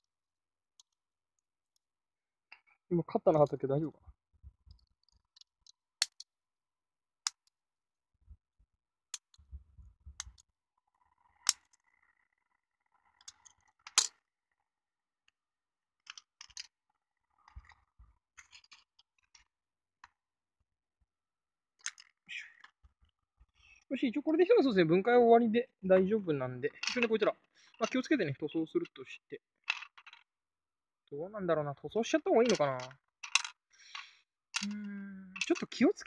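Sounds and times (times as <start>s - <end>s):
plastic parts clicking and snapping: 4.7s - 6.3s, 7.2s - 7.6s, 9.1s - 9.5s, 10.2s - 10.5s, 11.4s - 11.8s, 21.8s - 22.8s, 26.8s - 28.1s, 32.4s - 34.7s, 35.4s - 35.8s.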